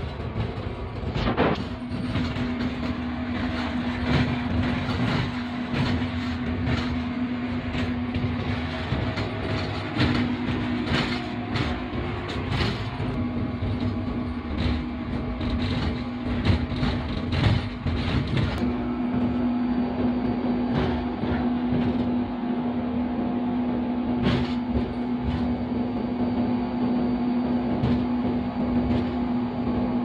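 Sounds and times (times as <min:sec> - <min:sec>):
wheels knocking over rail joints: 0:00.0 - 0:22.4
locomotive running hum: 0:00.0 - 0:30.0.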